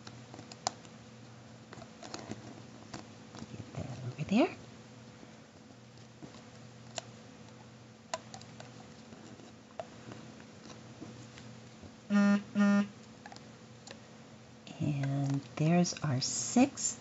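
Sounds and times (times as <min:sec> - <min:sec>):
short steady tones: 0:12.1 - 0:12.9.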